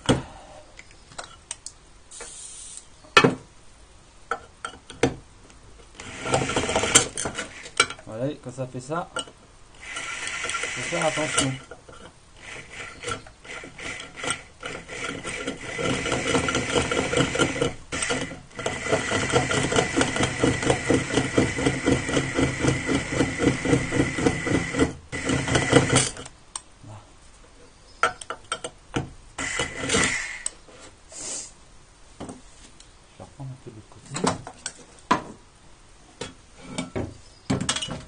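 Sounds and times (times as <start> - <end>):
electric drill grinding ceramic: 6.0 - 7.9, 9.8 - 11.7, 12.4 - 26.2, 29.4 - 30.6.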